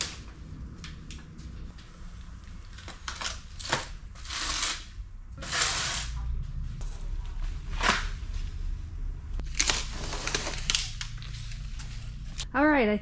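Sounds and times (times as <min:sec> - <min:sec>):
plastic trays rustling and scraping: 0:09.5 - 0:12.3.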